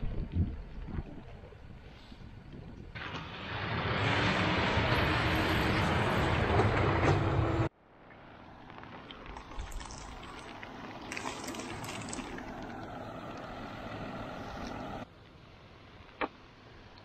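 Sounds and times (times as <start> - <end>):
tractor engine running: 10.7 - 15.0.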